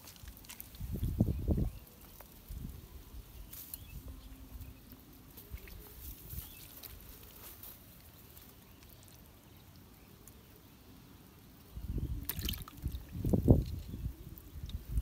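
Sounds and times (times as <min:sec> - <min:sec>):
fish splashing into water: 0:12.2 - 0:13.3.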